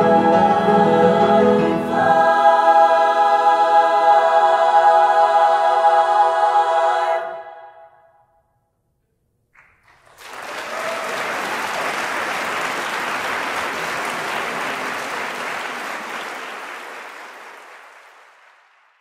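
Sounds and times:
audience applauding: 9.6s - 19.0s.

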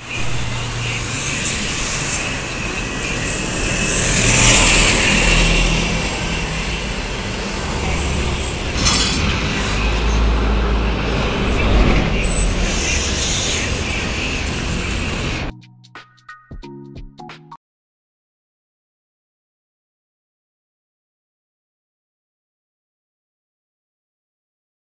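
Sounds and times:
cars passing in traffic: 0.0s - 15.5s
diesel bus engines running: 0.0s - 15.5s.

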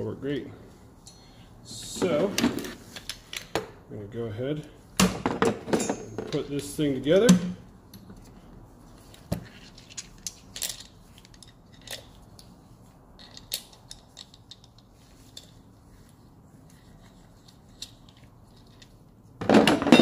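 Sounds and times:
metal tool clicks and clinks: 13.2s - 15.5s.

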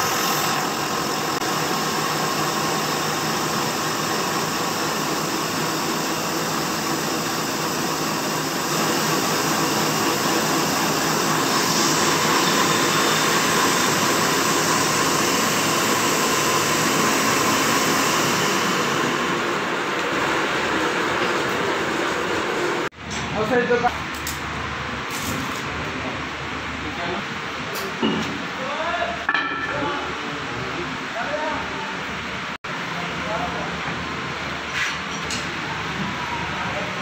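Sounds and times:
grinder and lathe humming: 0.0s - 22.9s
grinding wheel hissing on metal: 0.0s - 22.9s.

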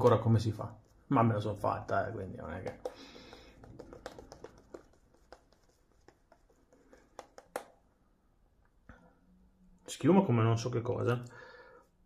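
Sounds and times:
shaving brush scratching skin: 3.5s - 7.6s.

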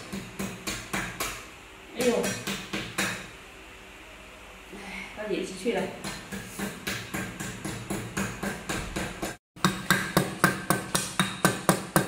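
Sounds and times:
cleaver chopping on wooden board: 6.0s - 12.0s.

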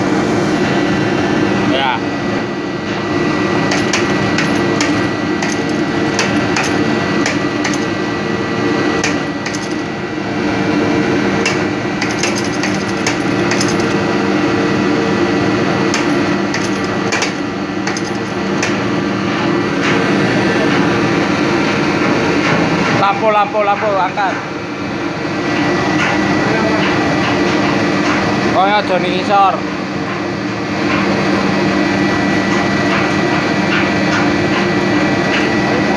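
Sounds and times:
engine-room machinery drone: 0.0s - 35.9s
metal knocks and clicks: 3.7s - 7.9s, 11.4s - 14.0s, 15.9s - 18.8s.

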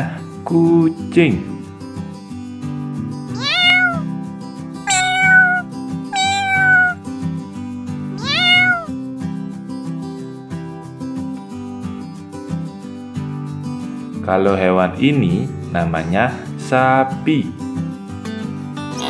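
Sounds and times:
cat meowing: 3.3s - 4.1s, 4.9s - 7.0s, 8.2s - 8.9s.

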